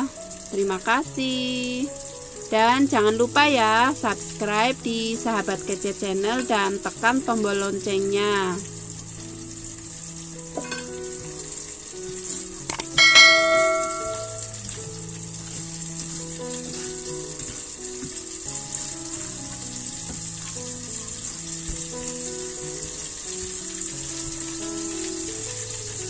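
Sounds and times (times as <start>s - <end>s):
soft background music: 0.0s - 26.0s
steady hiss: 7.9s - 26.0s
notification ding: 12.7s - 14.6s.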